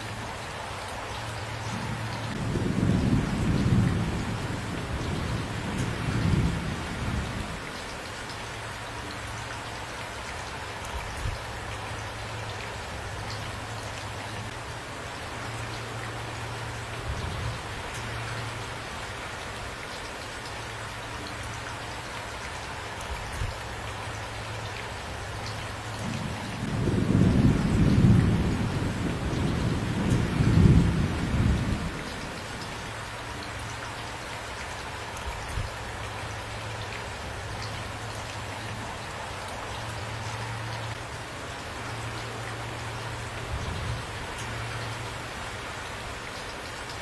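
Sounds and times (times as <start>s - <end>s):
steady rain: 0.0s - 47.0s
thunder rumble: 1.7s - 7.6s, 26.0s - 32.6s.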